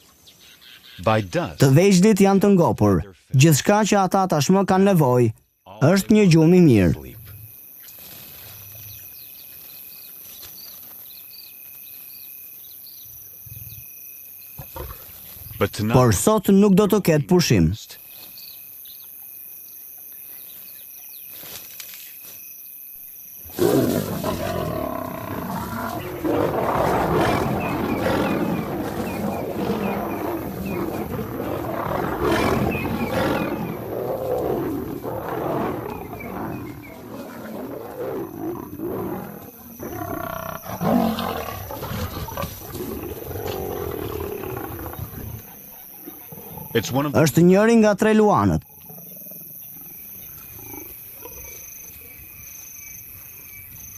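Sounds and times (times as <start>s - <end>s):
lions roaring and growling: 23.5s - 47.1s.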